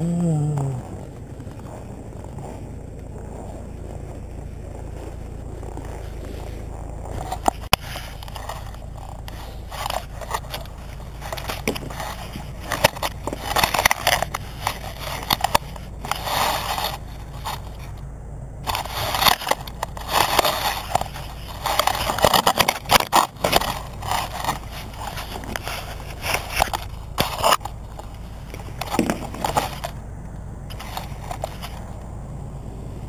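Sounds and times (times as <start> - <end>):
crunching of frozen snow: 0.0 - 33.0
scraping and knocking: 0.8 - 18.0.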